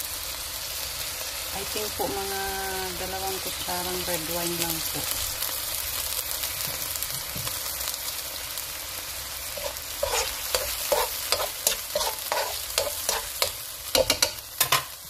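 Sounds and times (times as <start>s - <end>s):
sauce sizzling in a wok: 0.0s - 15.0s
spoon scraping a pan: 9.5s - 15.0s.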